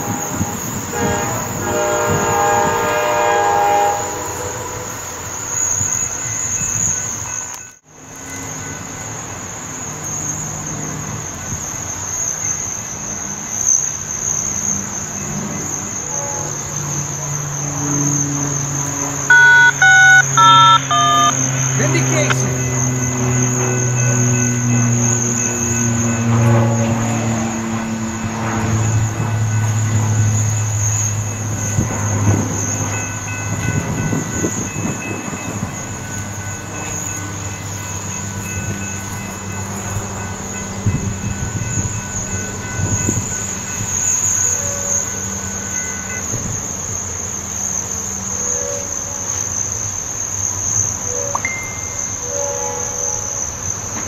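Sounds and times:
diesel locomotive engine hum: 0:21.3 - 0:54.0.

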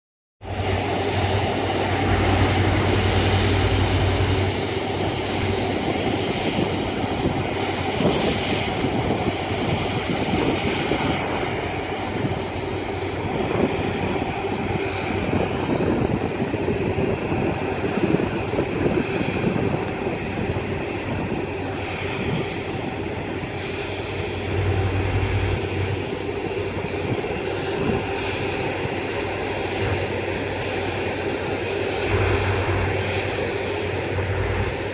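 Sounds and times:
low rumbles: 0:00.4 - 0:07.5, 0:22.6 - 0:28.9, 0:31.7 - 0:34.9
jet engines whining: 0:00.4 - 0:34.9.

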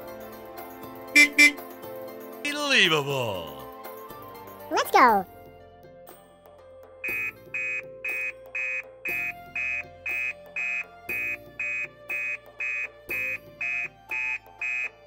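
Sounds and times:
background music: 0:00.0 - 0:15.0
electronic beeping: 0:07.0 - 0:15.0.

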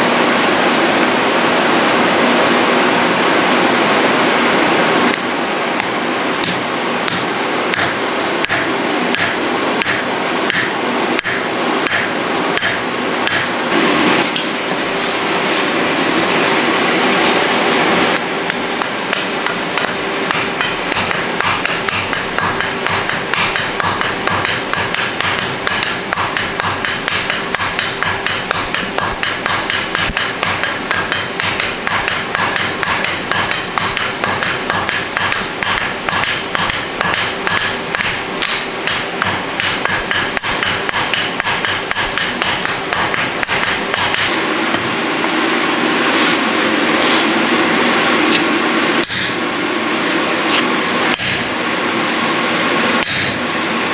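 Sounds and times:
steady rushing noise: 0:00.0 - 0:53.9
hammer blows on hot steel: 0:05.8 - 0:14.4, 0:50.5 - 0:51.5, 0:53.0 - 0:53.5.

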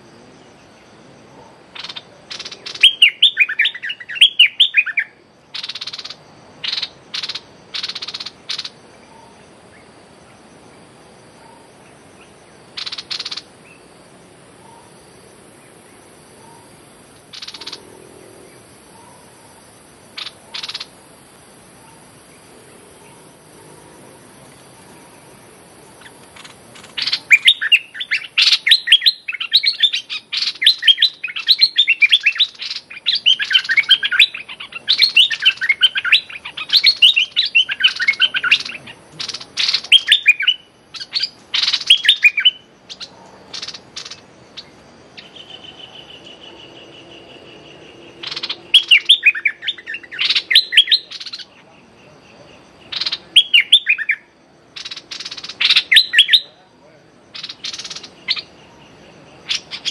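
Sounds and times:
bird chattering calls: 0:01.7 - 0:09.4, 0:12.2 - 0:13.8, 0:16.4 - 0:19.3, 0:20.2 - 0:21.0, 0:26.0 - 0:47.1, 0:48.2 - 0:51.7, 0:52.8 - 0:54.2, 0:54.8 - 0:56.6, 0:57.3 - 0:58.8, 0:59.4 - 0:59.9.

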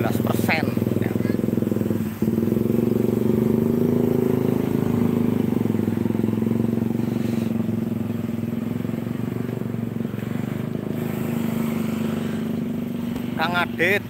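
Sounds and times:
motorcycle engine idling: 0:00.0 - 0:14.0.

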